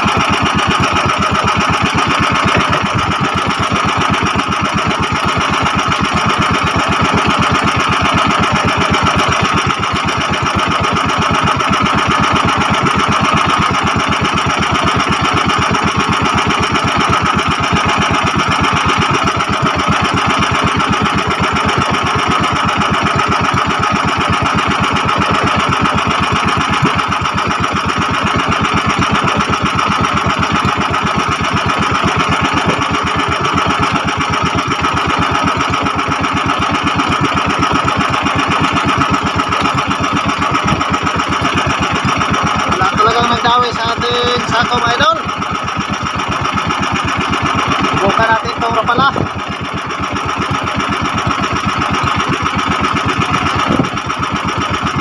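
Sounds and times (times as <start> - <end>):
boat engine clattering: 0.0 - 55.0.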